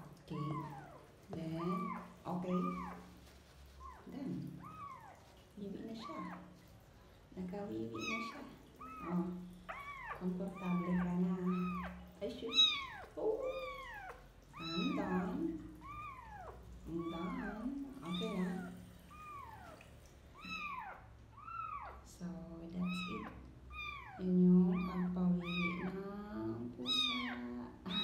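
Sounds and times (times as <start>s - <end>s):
kitten meowing: 0.4s - 1.0s, 1.6s - 3.1s, 4.6s - 5.3s, 8.0s - 22.0s, 22.8s - 25.9s, 26.8s - 28.0s.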